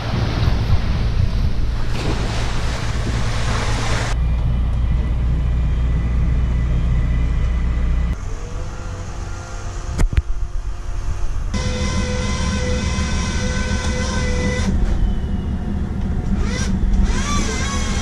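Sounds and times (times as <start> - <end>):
water rushing along a hull: 0.0 - 4.2, 8.1 - 18.0
wind on microphone: 0.0 - 4.2
low boat engine hum: 0.0 - 18.0.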